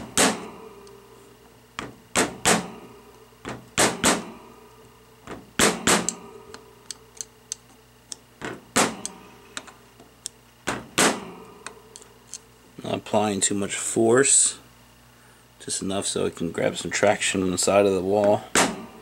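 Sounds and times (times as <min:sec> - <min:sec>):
metallic clicks and taps: 0:06.0 - 0:08.3.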